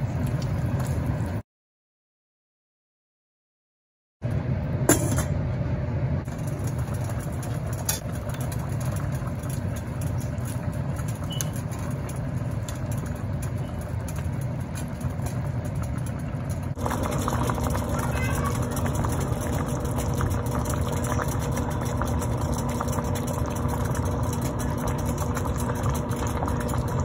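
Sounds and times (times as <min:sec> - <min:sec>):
pot boiling: 0:00.0 - 0:01.4, 0:06.2 - 0:27.0.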